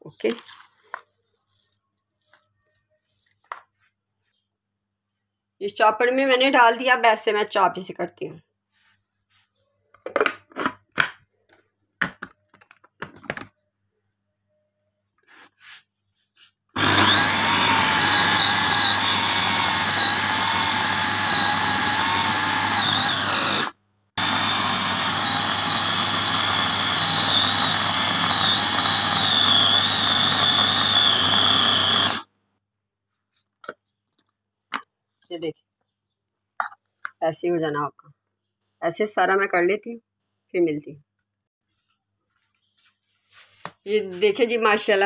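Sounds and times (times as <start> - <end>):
food chopper motor whine: 16.8 - 32.3.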